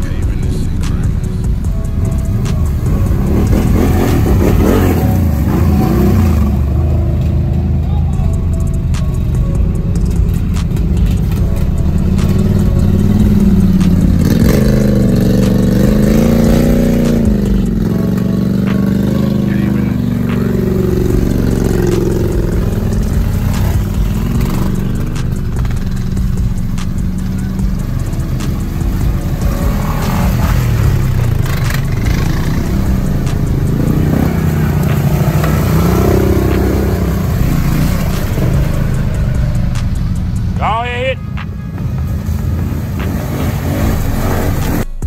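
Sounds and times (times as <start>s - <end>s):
atv engines revving: 0.0s - 45.0s.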